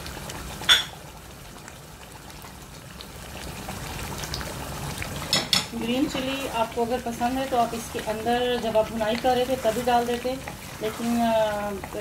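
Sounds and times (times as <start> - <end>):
curry bubbling in a pot: 0.0 - 12.0.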